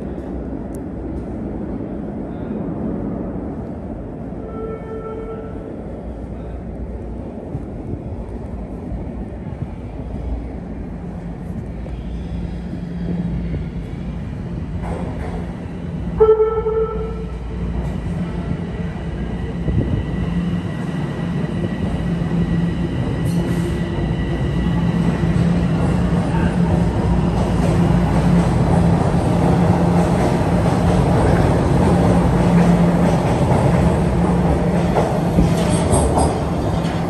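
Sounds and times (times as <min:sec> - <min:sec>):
subway train rumble and hum: 0:00.0 - 0:37.0
short horn-like tone: 0:04.4 - 0:05.6, 0:16.2 - 0:17.4.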